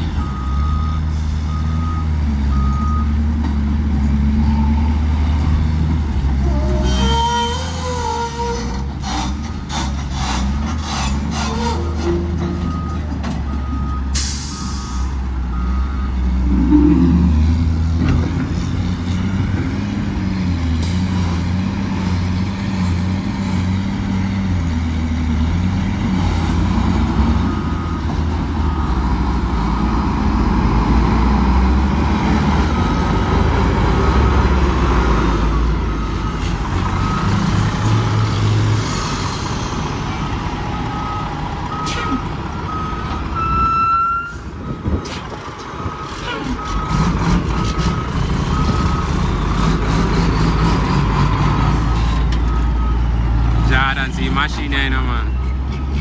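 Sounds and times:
heavy diesel engines running: 0.0 - 56.0.

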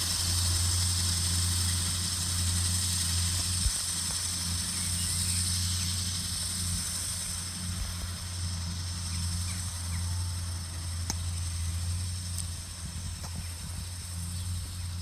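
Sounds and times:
high hiss: 0.0 - 15.0
tractor engine humming: 0.0 - 15.0.

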